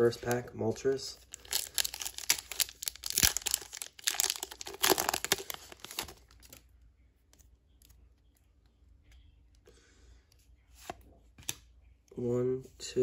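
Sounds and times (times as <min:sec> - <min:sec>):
foil wrapper tearing and crinkling: 0:01.3 - 0:06.6.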